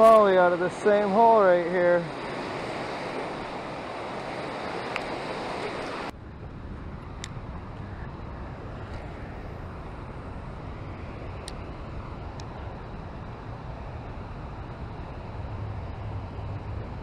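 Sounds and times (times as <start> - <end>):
river rapids rushing: 0.0 - 6.1
wind on microphone: 0.0 - 17.0.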